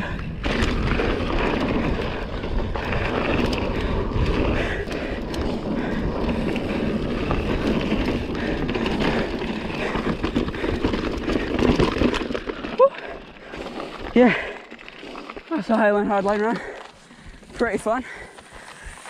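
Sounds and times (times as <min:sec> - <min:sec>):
wind buffeting microphone: 0:00.0 - 0:11.9
bike rattling: 0:00.0 - 0:19.0
bike tyres rolling on dirt: 0:00.0 - 0:19.0.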